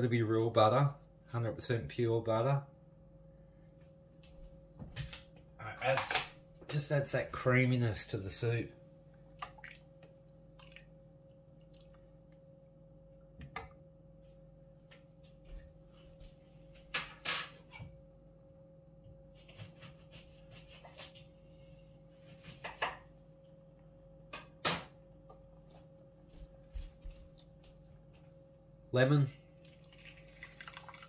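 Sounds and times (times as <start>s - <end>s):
steady hum: 0.0s - 19.5s.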